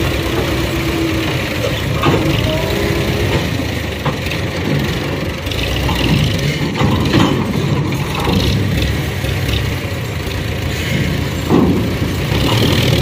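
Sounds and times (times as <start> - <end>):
hydraulic trolley raising: 0.0 - 8.6
tractor engine running: 0.0 - 13.0.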